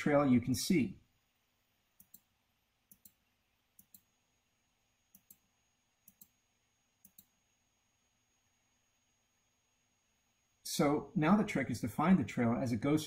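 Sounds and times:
computer mouse clicking: 2.0s - 2.3s, 2.9s - 3.2s, 3.8s - 4.1s, 5.1s - 6.4s, 7.0s - 7.4s.

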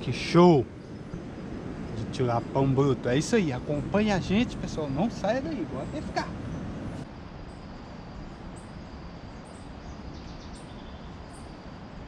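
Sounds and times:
steady background hiss: 0.0s - 12.0s
faint high bird chirps: 3.6s - 12.0s.

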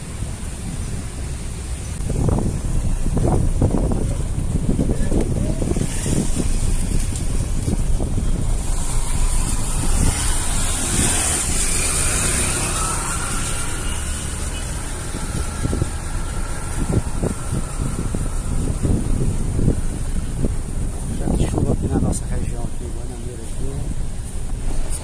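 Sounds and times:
vehicle passing: 1.4s - 21.1s
wind buffeting microphone: 1.8s - 25.0s.

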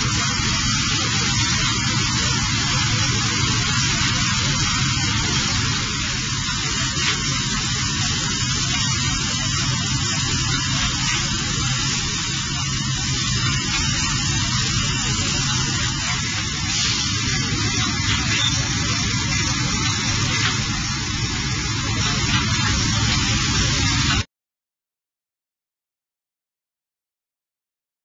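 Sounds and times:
laser cleaning hiss: 0.0s - 24.2s.

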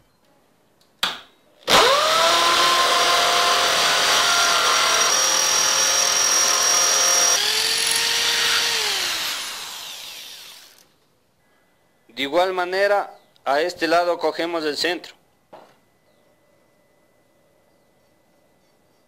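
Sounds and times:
electric drill boring through steel: 1.7s - 10.9s.

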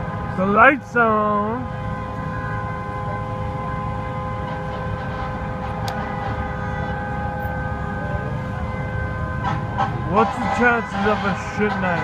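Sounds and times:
vehicle horn long blast: 2.0s - 7.8s, 9.3s - 12.0s.

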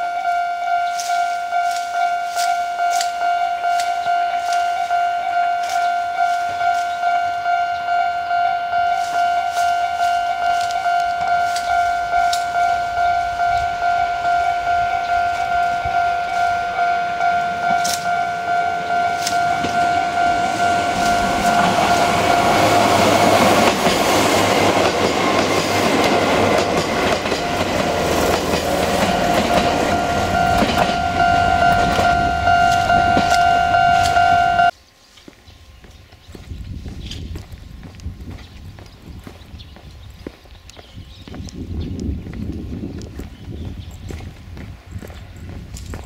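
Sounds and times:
level crossing bell ringing: 0.0s - 23.7s, 26.9s - 34.7s
train wheels on rails: 0.2s - 46.0s.

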